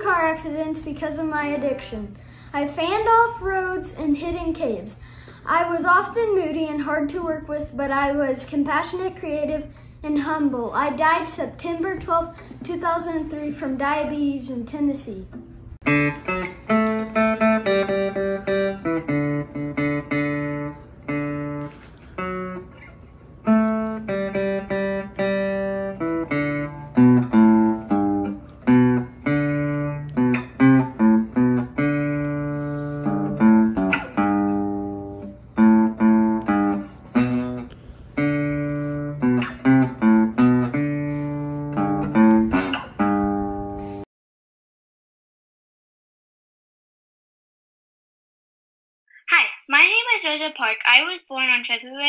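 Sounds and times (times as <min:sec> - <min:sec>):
acoustic guitar picked melody: 0:15.8 - 0:44.0.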